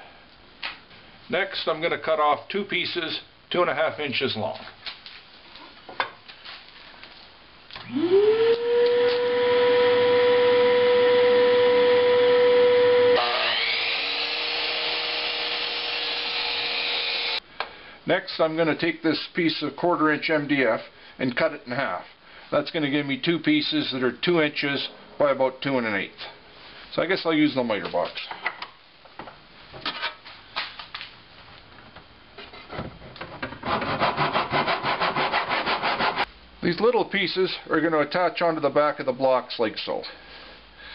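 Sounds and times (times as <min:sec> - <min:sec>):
miter saw motor whining: 0:07.8 - 0:17.4
saw blade cutting wood: 0:13.2 - 0:17.4, 0:33.6 - 0:36.3.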